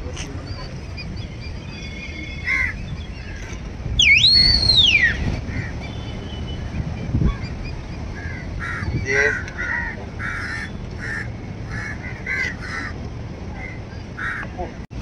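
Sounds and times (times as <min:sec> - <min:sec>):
man whistling: 0:04.0 - 0:05.2
crows cawing: 0:08.2 - 0:13.0, 0:13.6 - 0:14.6.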